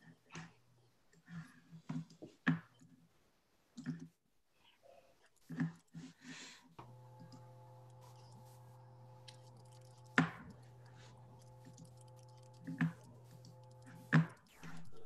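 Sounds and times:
steady low hum: 6.8s - 15.0s
sharp clicks: 9.2s - 15.0s.

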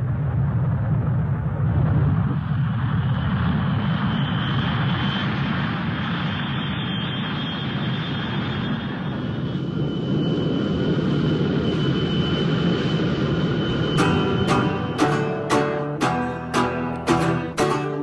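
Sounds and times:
faint high whine: 2.3s - 18.0s
low rumbling drone: 8.4s - 17.8s
strummed acoustic guitar: 14.0s - 18.0s.

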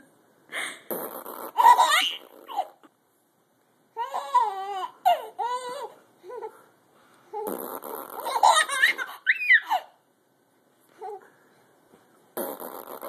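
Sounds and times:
baby laughing and squealing: 1.4s - 2.9s, 7.4s - 10.0s.

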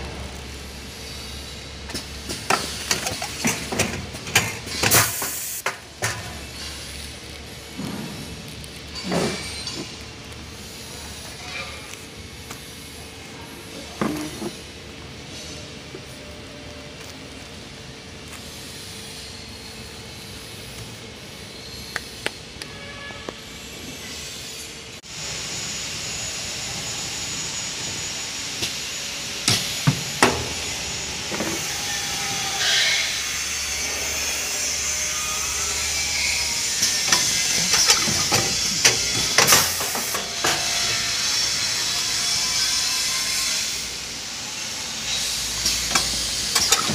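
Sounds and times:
packing machine hissing: 0.1s - 11.5s, 25.1s - 46.9s
machine parts clacking: 36.7s - 41.0s, 45.6s - 46.9s.

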